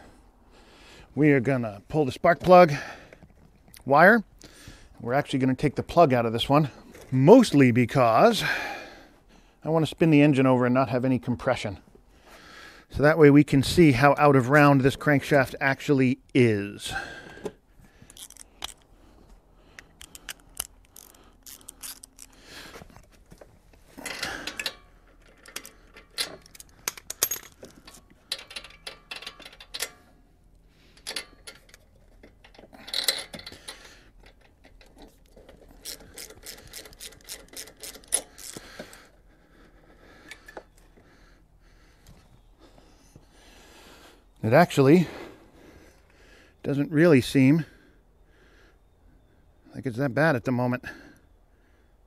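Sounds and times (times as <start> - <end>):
socket ratchet clicking: 18.1 - 18.9, 19.7 - 22.6, 24.4 - 30.0, 30.9 - 39.1
metal tools clattering: 23.9 - 30.2, 30.9 - 39.0.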